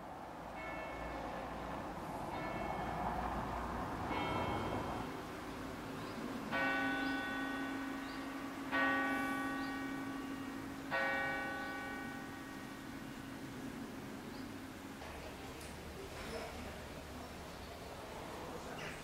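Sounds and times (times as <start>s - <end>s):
church bell tolling: 0.6s - 3.5s, 4.1s - 13.8s.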